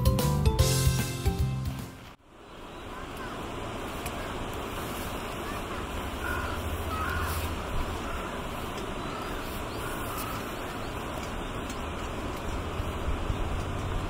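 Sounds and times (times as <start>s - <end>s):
bird calling: 2.6s - 13.9s
wind rumbling on microphone: 3.2s - 14.0s.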